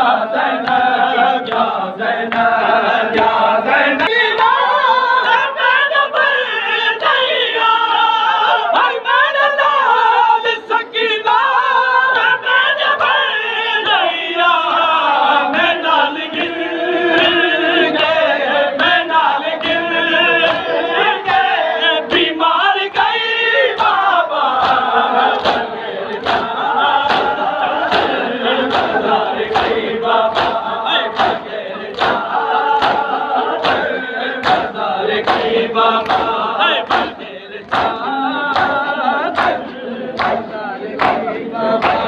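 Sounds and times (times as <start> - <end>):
crowd of men chanting: 0.0 - 42.0
hand slaps on bare chests: 24.6 - 26.5, 27.1 - 38.8, 39.4 - 40.4, 41.0 - 42.0.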